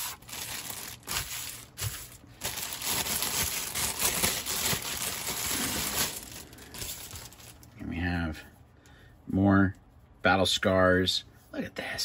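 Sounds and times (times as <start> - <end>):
plastic bag crinkling: 0.0 - 7.7.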